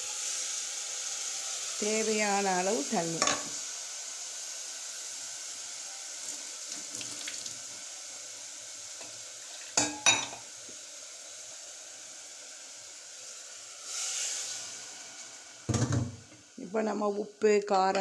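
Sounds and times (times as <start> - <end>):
food sizzling in a pot: 0.0 - 18.0
steel pot clanking: 9.8 - 10.4.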